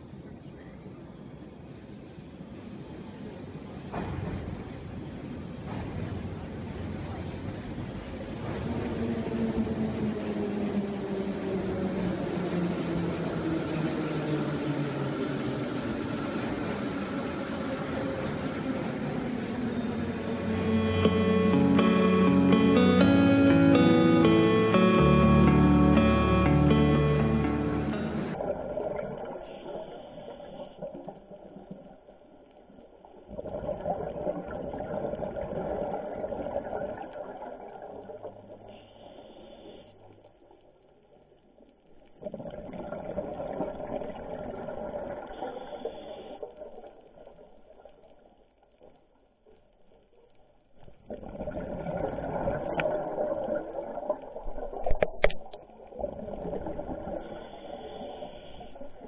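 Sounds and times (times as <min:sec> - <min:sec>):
underwater exhaled bubbles: 0:28.3 - 0:39.9, 0:42.1 - 0:48.8, 0:50.8 - 0:59.0.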